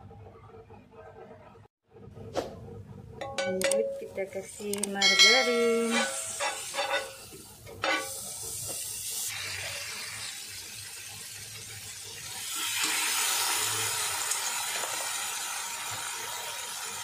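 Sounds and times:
fish sizzling in a pan: 0:05.7 - 0:17.0.

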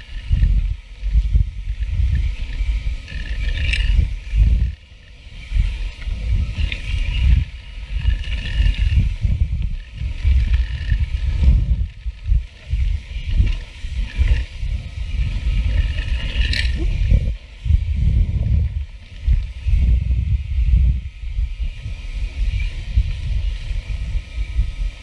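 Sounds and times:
mountain bike rolling and rattling: 0:00.0 - 0:25.0
wind buffeting microphone: 0:00.0 - 0:25.0.

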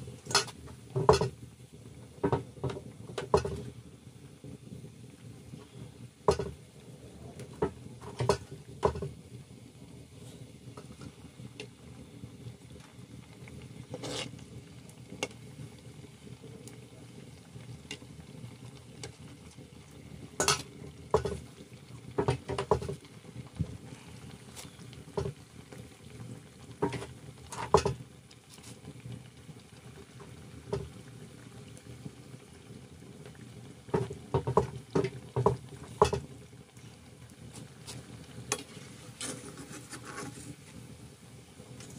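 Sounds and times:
oil sizzling: 0:00.0 - 0:41.9
metal utensil scraping pan: 0:00.3 - 0:01.3, 0:13.9 - 0:14.4, 0:20.4 - 0:21.4, 0:38.5 - 0:40.5.

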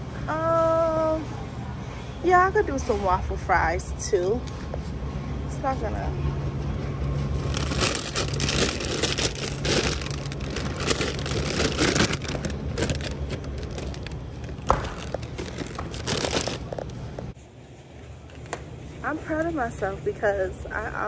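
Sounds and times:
low hum: 0:04.2 - 0:17.4
plastic bag crinkling: 0:07.4 - 0:17.0.

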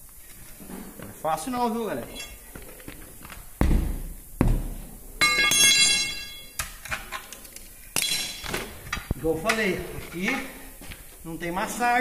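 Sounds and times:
heavy thuds: 0:03.5 - 0:05.2
metallic clang ringing: 0:05.2 - 0:06.6.

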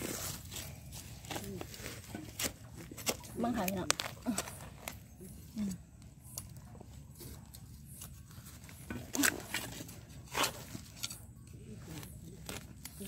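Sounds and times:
metal blade scraping dry soil: 0:00.0 - 0:04.0, 0:07.1 - 0:13.0.

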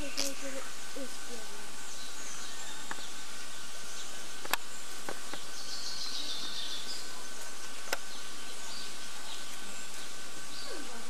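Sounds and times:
faint birds twittering: 0:00.0 - 0:11.0
steady hiss: 0:00.0 - 0:11.0.

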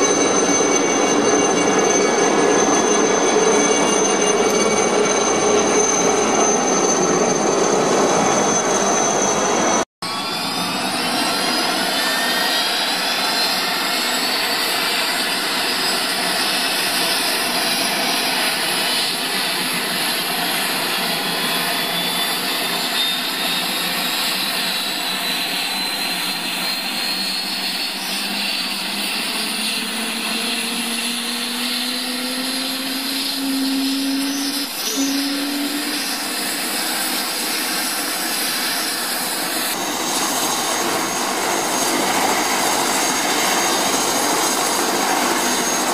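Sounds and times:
helicopter turbine hiss and whine: 0:00.0 - 0:45.9
rotor tone climbing: 0:26.5 - 0:45.8.

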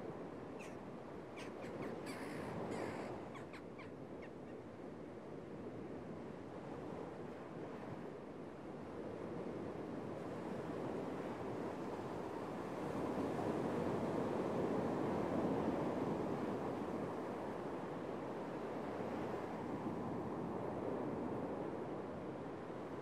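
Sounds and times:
gulls calling: 0:00.6 - 0:00.8, 0:01.4 - 0:04.6.

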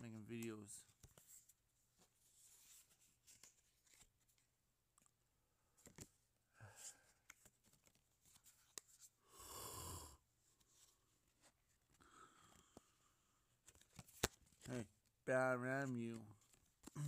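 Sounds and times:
cards clicking and sliding: 0:05.8 - 0:06.1, 0:07.1 - 0:09.0, 0:13.6 - 0:14.8.

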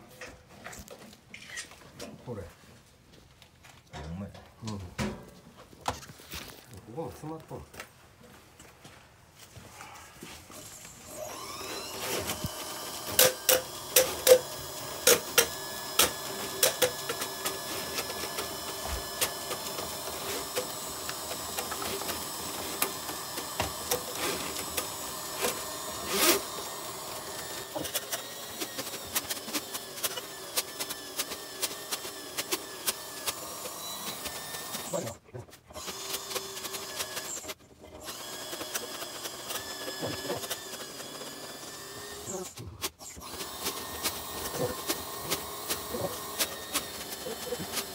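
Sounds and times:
drain rodder motor whirring: 0:11.0 - 0:35.1, 0:35.7 - 0:42.4, 0:43.0 - 0:47.9.

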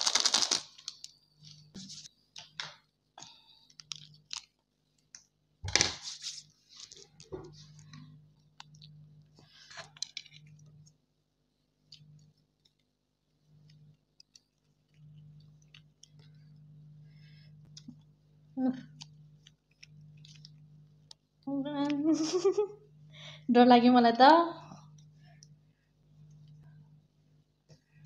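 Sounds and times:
plastic crinkles and clicks: 0:00.0 - 0:01.6, 0:02.4 - 0:06.0, 0:09.7 - 0:11.0.

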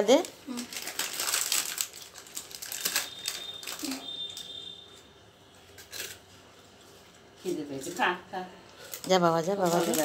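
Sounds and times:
plastic wrapper crinkling: 0:00.0 - 0:04.7, 0:08.8 - 0:10.0.

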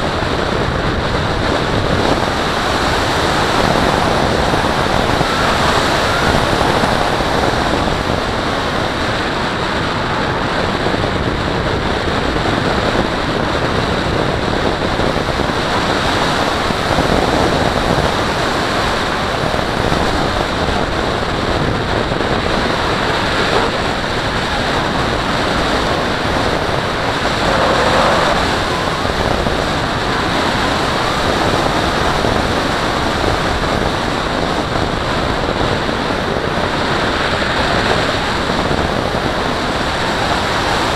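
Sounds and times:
wind rushing over camera: 0:00.0 - 0:40.9.

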